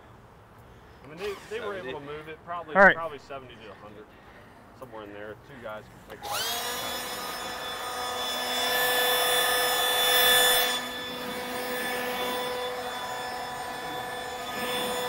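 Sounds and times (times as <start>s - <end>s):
leaf blower whining: 6.2s - 15.0s.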